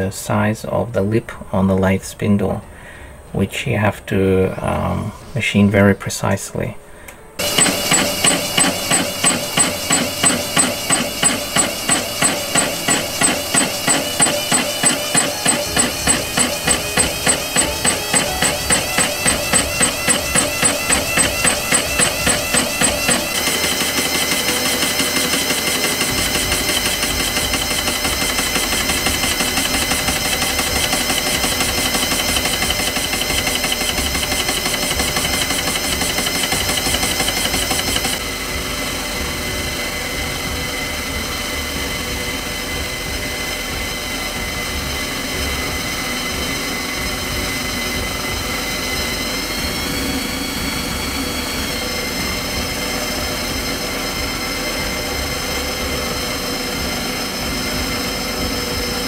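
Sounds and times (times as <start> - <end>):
metal lathe cutting steel: 7.4 - 59.0.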